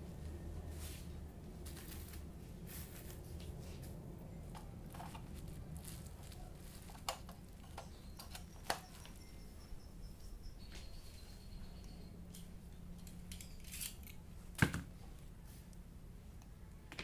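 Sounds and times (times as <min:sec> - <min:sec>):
steady low hum: 0:00.0 - 0:17.0
bubble wrap and cables rustling: 0:00.7 - 0:09.2.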